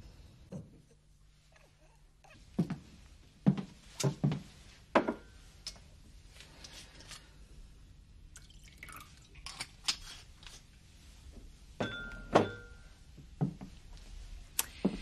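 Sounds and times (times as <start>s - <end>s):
liquid pouring into a glass: 8.3s - 9.6s
glass clinking: 11.8s - 12.9s.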